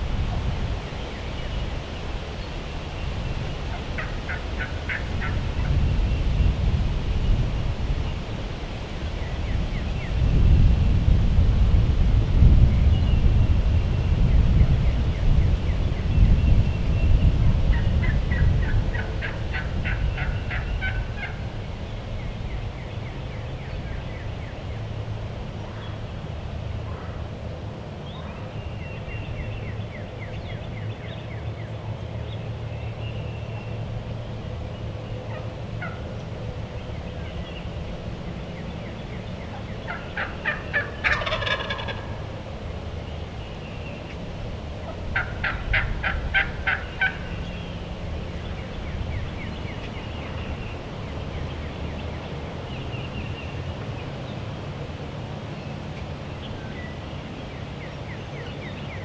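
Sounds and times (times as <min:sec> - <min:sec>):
turkey gobbling: 0:03.7 - 0:05.4, 0:17.7 - 0:21.4, 0:35.3 - 0:36.0, 0:39.8 - 0:42.2, 0:44.8 - 0:47.3
faint songbird chirps: 0:46.7 - 0:54.6, 0:55.5 - 0:59.0.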